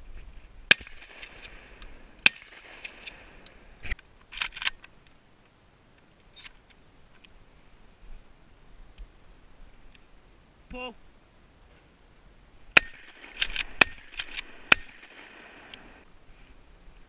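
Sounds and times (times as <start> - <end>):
shotgun pump metallic clicks: 0.7 - 5.2, 12.8 - 16.2.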